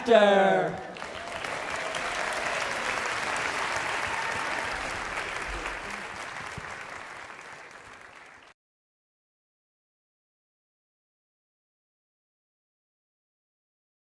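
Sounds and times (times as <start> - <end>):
audience applauding: 0.8 - 8.6.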